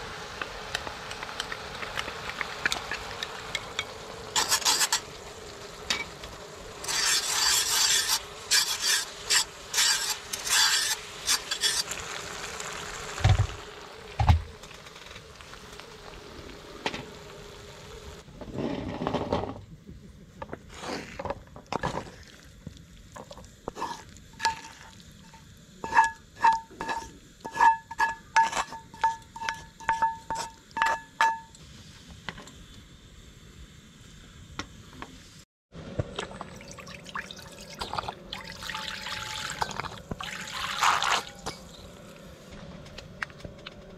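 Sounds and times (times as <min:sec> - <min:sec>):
tongs scraping meat in skillet: 0:04.4 - 0:05.1, 0:06.8 - 0:12.0, 0:23.7 - 0:31.4.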